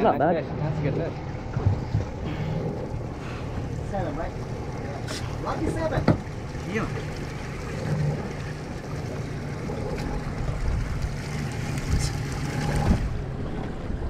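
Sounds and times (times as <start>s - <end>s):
boat engine running: 0.0s - 14.0s
wind noise on microphone: 10.2s - 14.0s.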